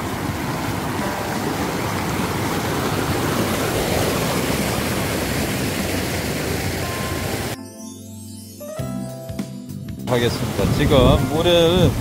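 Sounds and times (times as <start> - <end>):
stream rushing over rocks: 0.0 - 7.6, 10.1 - 12.0.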